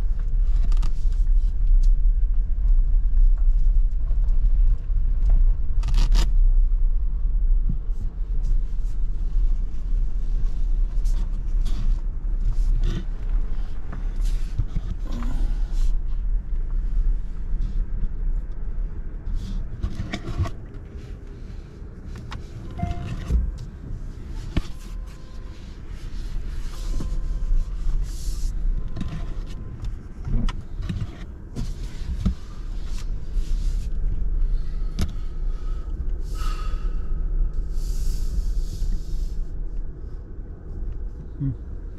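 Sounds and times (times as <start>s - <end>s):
tyres rumbling on road: 0.0s - 41.9s.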